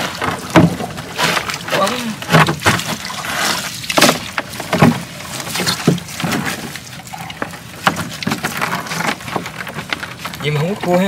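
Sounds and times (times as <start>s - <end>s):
knocks and slaps on plastic hull: 0.0s - 3.0s, 3.9s - 6.8s
wet netting rustling: 0.0s - 11.0s.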